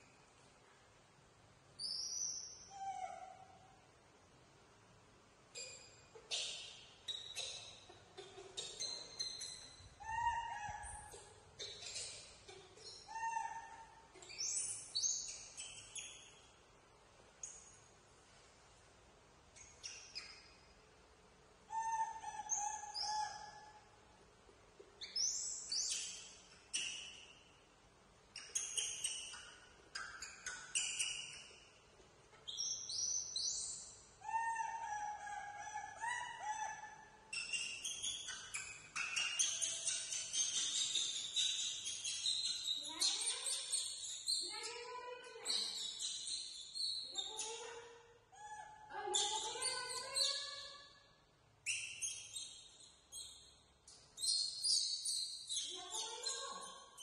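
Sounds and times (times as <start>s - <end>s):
baby monkey squealing cries: 8.2s - 12.2s, 12.8s - 14.6s, 21.7s - 23.8s, 34.2s - 44.8s, 45.4s - 50.7s.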